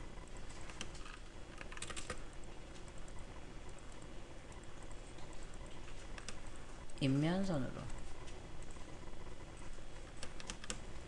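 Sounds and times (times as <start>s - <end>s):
steady background hiss: 0.0s - 11.0s
mouse and keyboard clicks: 0.6s - 2.2s, 5.2s - 6.5s, 10.2s - 10.9s.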